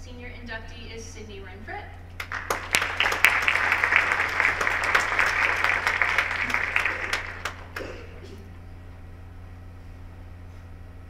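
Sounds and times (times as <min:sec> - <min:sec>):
audience applauding: 0:02.2 - 0:08.2.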